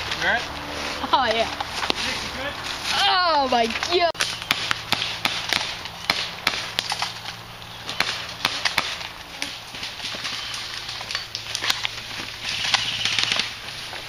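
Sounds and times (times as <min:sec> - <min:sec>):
rustling undergrowth: 0:00.0 - 0:14.0
sharp cracks and snaps: 0:03.8 - 0:09.2.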